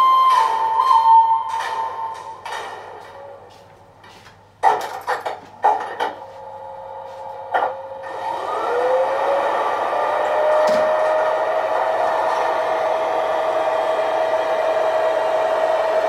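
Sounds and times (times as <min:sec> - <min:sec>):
model train clicks and knocks: 0:04.6 - 0:06.2
electric motor whine: 0:07.9 - 0:16.0.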